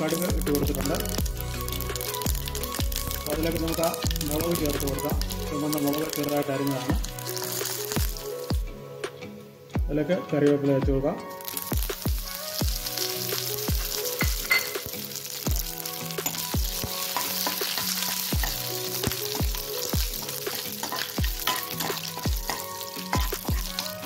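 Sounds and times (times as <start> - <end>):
spices sizzling in hot oil: 0.0 - 10.2, 11.0 - 24.0
background music with beat: 0.0 - 24.0
steel ladle stirring: 12.9 - 24.0.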